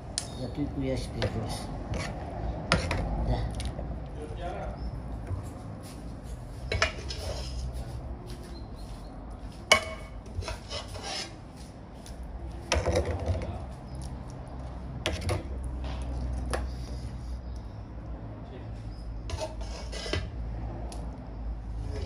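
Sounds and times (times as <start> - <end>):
utensils and pots scraping: 1.2 - 3.1, 6.7 - 7.8, 9.7 - 11.4, 19.2 - 20.4.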